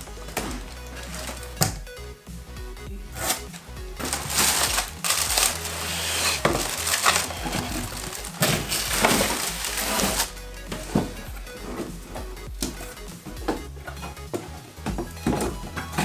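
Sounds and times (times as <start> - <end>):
plastic bag crinkling: 3.2 - 10.3.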